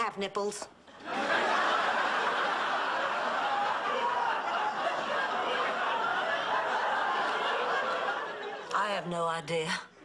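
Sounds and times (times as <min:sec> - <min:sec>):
studio audience laughing: 0:00.9 - 0:08.8.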